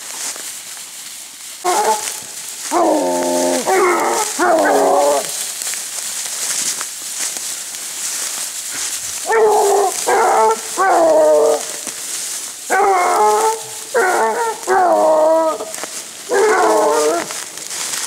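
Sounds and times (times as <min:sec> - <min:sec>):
hounds baying: 0:01.6 - 0:05.6, 0:08.7 - 0:18.0.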